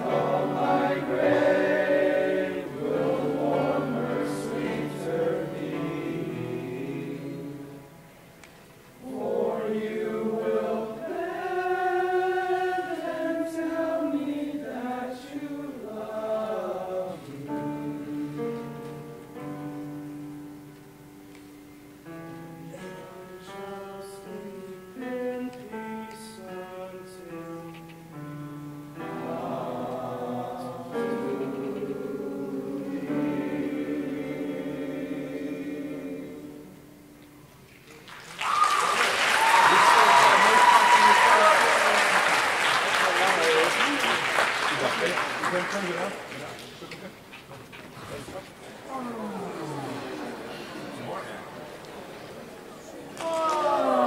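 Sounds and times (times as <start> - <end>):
boys choir singing: 0.0 - 8.0, 9.0 - 19.6, 22.7 - 27.6, 28.9 - 37.0, 38.9 - 42.8
applause and cheering: 38.0 - 46.6, 53.2 - 54.0.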